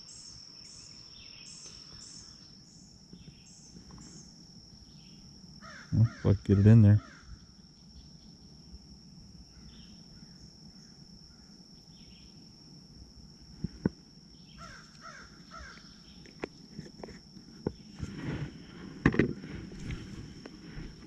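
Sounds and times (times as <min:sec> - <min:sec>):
distant crows cawing: 0:05.6 - 0:07.4, 0:14.5 - 0:16.0.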